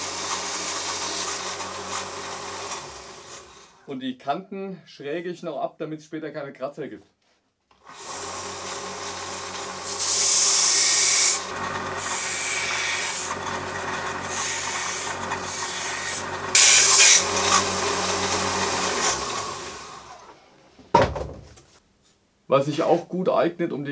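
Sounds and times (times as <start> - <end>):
belt sander motor hum: 0.0 - 3.8, 7.8 - 20.4
plastic grinding on sander belt: 0.0 - 3.8, 7.8 - 20.3.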